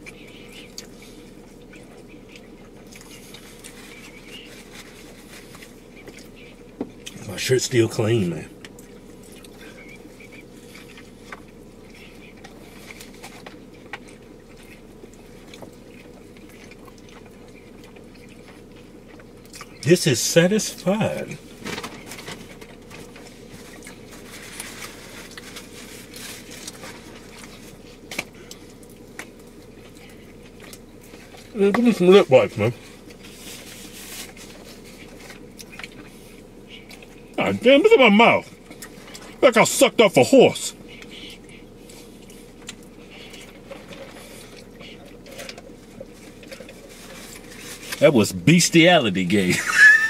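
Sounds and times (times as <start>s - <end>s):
chewing: 0.0s - 7.2s, 8.1s - 19.9s, 20.7s - 37.4s, 38.4s - 39.4s, 40.7s - 48.0s
low hum: 0.0s - 50.0s
food wrappers rustling: 2.9s - 6.4s, 21.6s - 31.5s, 32.2s - 36.4s, 41.8s - 48.0s
wrappers crackling: 21.6s - 28.0s, 32.6s - 35.8s.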